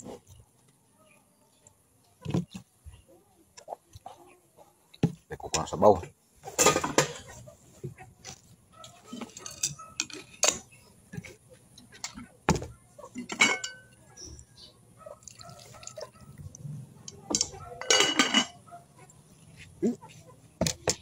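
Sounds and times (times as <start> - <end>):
dishes and utensils clinking: 6.5 - 7.4, 9.1 - 11.3, 13.1 - 14.0, 17.2 - 18.6.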